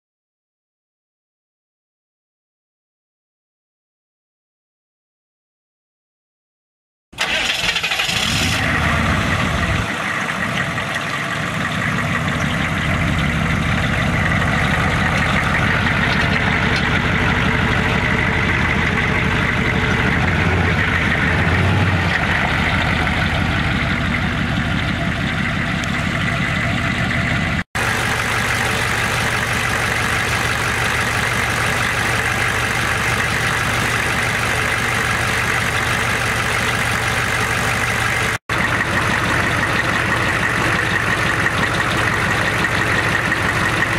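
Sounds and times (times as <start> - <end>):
diesel engine starting and idling: 7.2 - 43.9.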